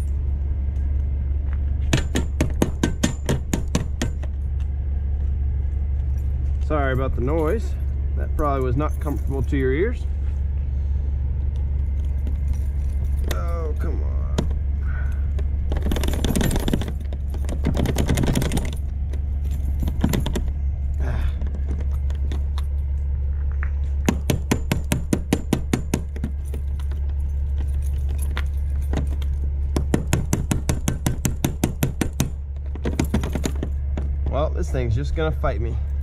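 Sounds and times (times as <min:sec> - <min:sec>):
steady low hum: 0:00.0 - 0:36.0
padlock and keys rattling: 0:08.6 - 0:10.0, 0:11.6 - 0:23.4, 0:25.8 - 0:34.8
rapid lock clicks: 0:15.7 - 0:18.8.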